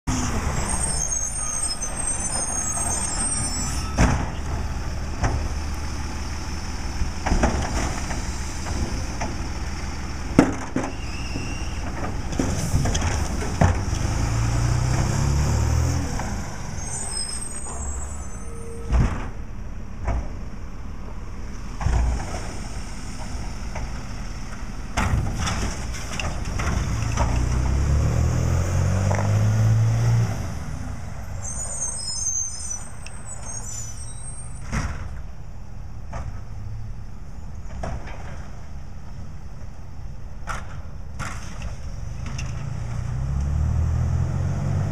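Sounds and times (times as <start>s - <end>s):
diesel engine running: 0.1s - 31.6s
carts banging against truck: 10.3s - 14.1s
air brakes hissing: 10.8s - 13.0s, 16.6s - 18.9s.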